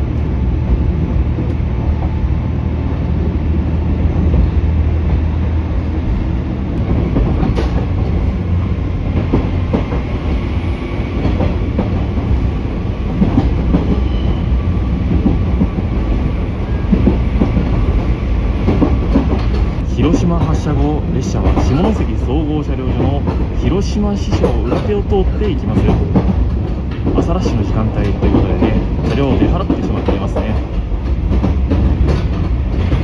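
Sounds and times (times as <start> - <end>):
train wheels clicking over rail joints: 6.8 - 33.0.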